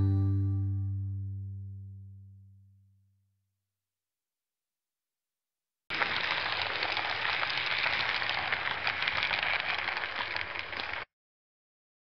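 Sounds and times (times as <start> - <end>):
model train wheels clicking on rails: 5.9 - 11.0.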